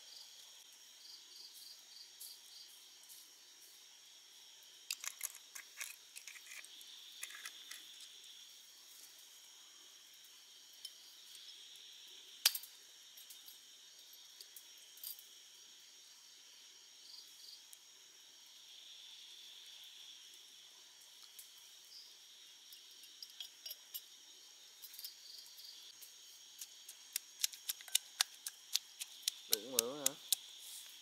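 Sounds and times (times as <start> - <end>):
crickets chirring: 0.0 - 31.0
small clicks and clinks: 4.9 - 8.1, 22.7 - 24.1, 26.6 - 30.5.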